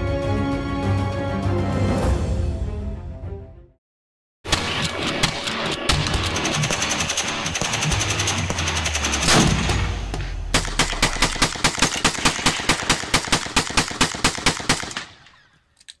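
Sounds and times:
rapid gunfire: 4.4s - 15.2s
rifle shots: 4.5s - 15.4s.

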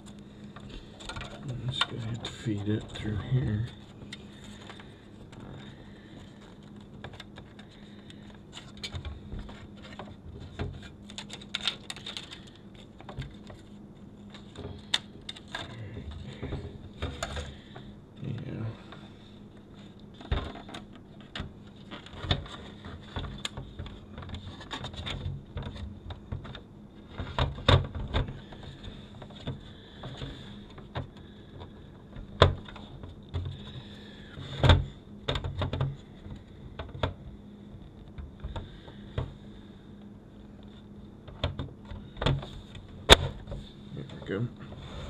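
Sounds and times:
clicks and knocks on plastic housing: 34.5s - 37.2s.

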